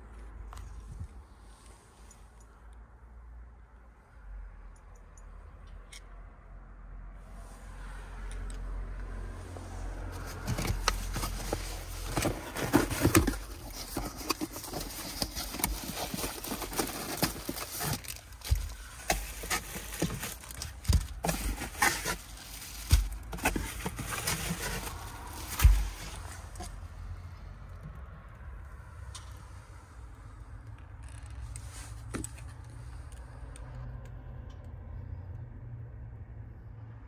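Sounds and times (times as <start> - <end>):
packaging crinkling and rustling: 10.1 - 26.8.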